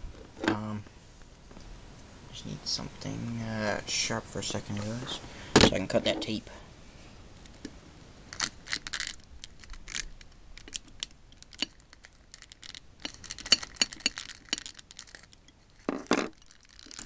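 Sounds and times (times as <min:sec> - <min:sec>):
small hard objects clicking: 0:08.3 - 0:17.0.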